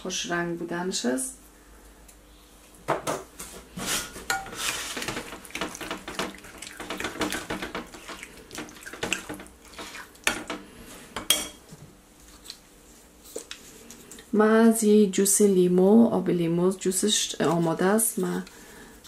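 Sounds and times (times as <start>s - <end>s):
spoon clinking and scraping bowl: 4.3s - 10.6s
wet squelching: 4.5s - 10.3s.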